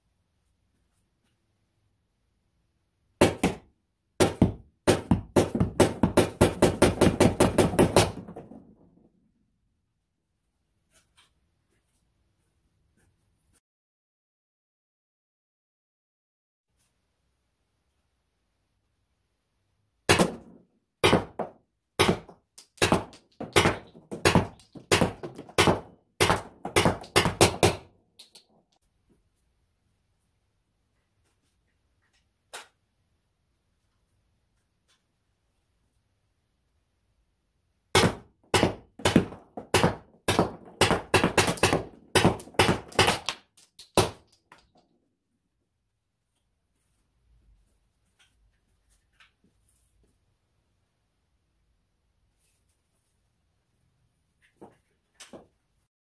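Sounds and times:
launcher shots hitting cardboard box: 0:20.1 - 0:27.9, 0:38.0 - 0:43.3.

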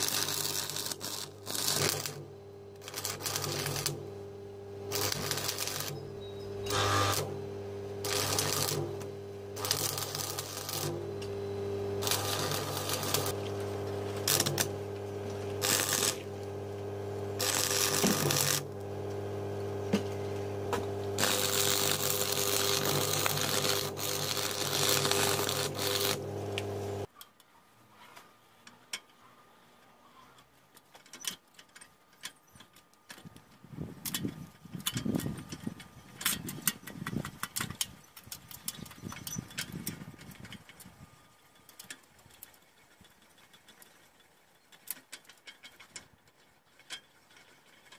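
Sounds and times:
arc welder electrical hum: 0:00.0 - 0:27.1, 0:31.0 - 0:43.0
welding arc crackling: 0:00.0 - 0:27.1
faint clicks and handling noises: 0:26.6 - 0:47.9.

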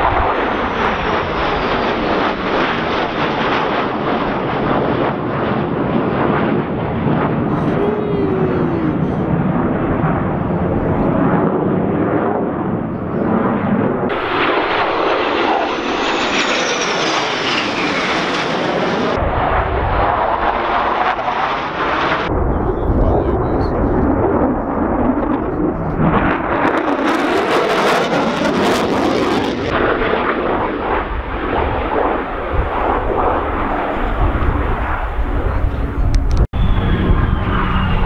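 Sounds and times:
jet engine roar: 0:00.0 - 0:38.0
high whine falling in pitch: 0:07.5 - 0:09.8, 0:35.8 - 0:38.0.

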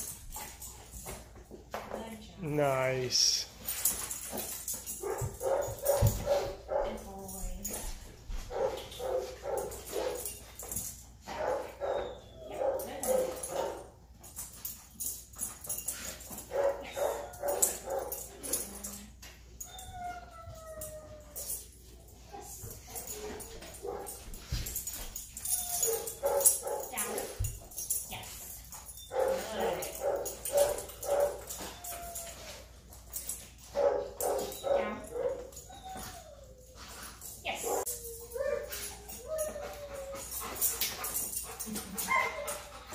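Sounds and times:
dog whining and whimpering: 0:11.8 - 0:12.9, 0:16.8 - 0:23.6, 0:24.7 - 0:26.4, 0:31.3 - 0:33.0, 0:34.8 - 0:42.9.

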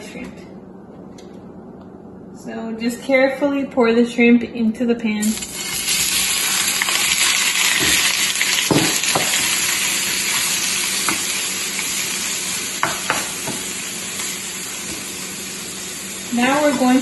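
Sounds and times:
shrimp sizzling in oil: 0:05.3 - 0:17.0.

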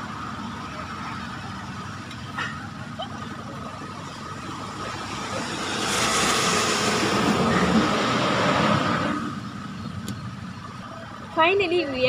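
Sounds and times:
rushing noise: 0:03.9 - 0:09.5.

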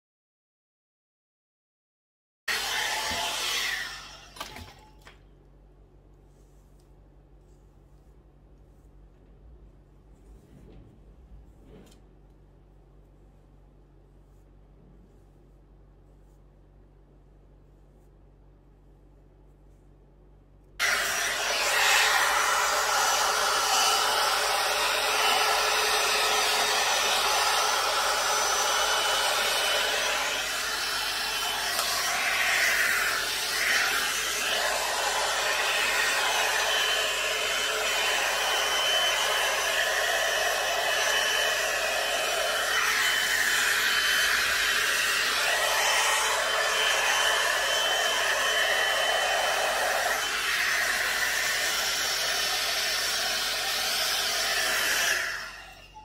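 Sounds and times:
hot air brush blowing: 0:02.5 - 0:04.5, 0:20.8 - 0:56.0.

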